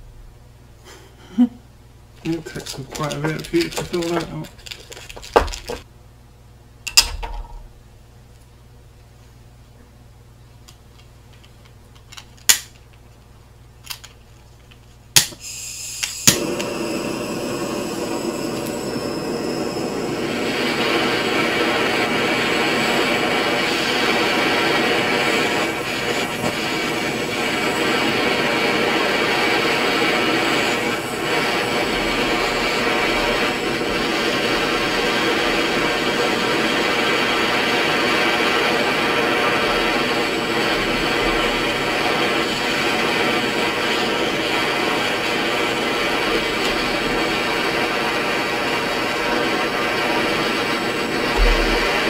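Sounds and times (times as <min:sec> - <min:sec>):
gas hissing: 0:02.2 - 0:05.9, 0:15.2 - 0:52.0
torch igniter clicks: 0:10.7 - 0:13.0, 0:15.2 - 0:43.1
torch flame rushing: 0:15.4 - 0:52.0.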